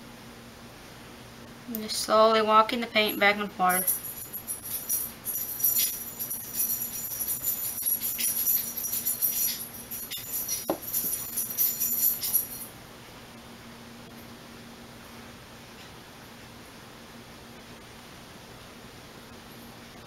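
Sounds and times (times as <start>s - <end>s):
small bells jingling: 3.1s - 12.7s.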